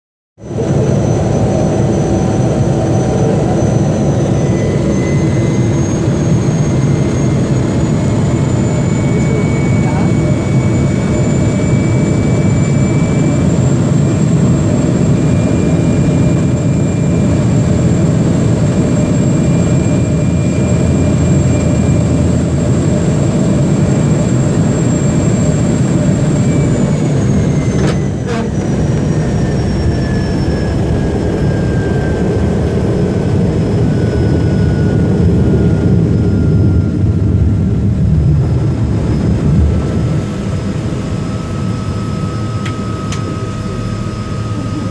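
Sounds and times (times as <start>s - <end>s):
propeller plane engine whine: 0.4s - 44.9s
low rumble: 27.4s - 42.4s.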